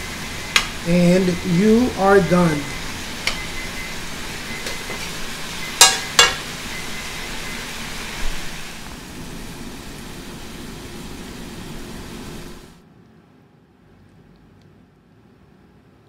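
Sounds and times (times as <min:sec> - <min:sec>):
stir fry sizzling in a wok: 0:00.0 - 0:12.8
utensil clinking against wok: 0:05.8 - 0:06.5.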